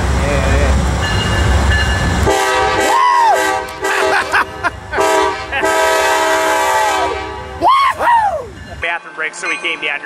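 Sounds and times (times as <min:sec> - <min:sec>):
locomotive air horn blasts: 0:02.2 - 0:04.2, 0:05.0 - 0:07.6.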